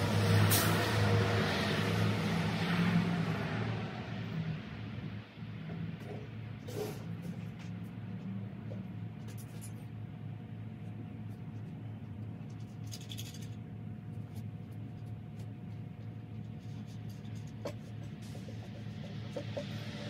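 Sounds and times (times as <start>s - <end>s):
steady low hum: 4.5s - 20.0s.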